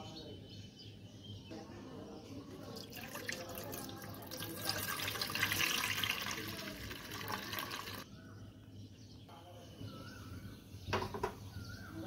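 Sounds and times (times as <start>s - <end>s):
milk pouring into steel pan: 2.6s - 8.0s.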